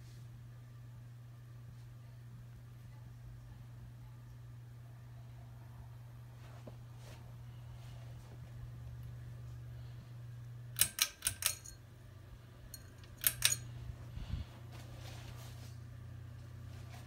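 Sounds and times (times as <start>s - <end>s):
ceiling fan motor humming: 0.0s - 17.0s
pull-chain switch clicks: 10.8s - 11.8s, 12.7s - 13.7s.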